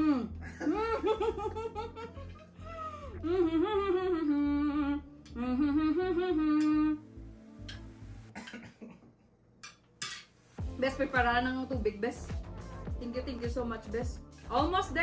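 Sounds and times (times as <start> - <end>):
woman humming a tune: 0.0 - 0.4, 2.6 - 7.3.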